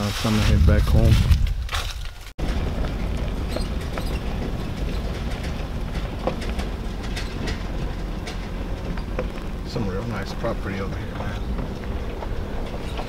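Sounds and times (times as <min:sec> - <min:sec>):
truck engine and road rumble: 0:00.0 - 0:13.0
knocks and rattles: 0:01.1 - 0:13.0.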